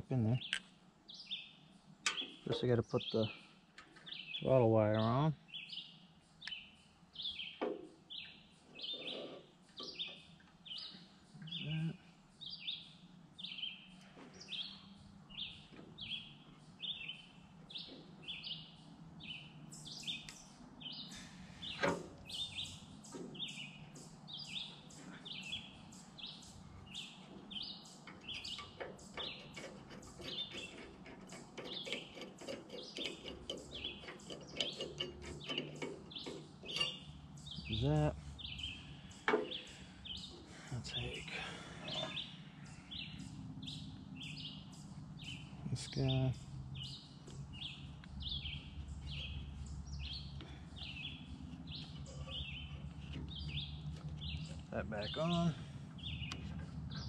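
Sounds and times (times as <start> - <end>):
bird chirping: 0.1 - 57.0
metal parts clicking: 27.9 - 37.2.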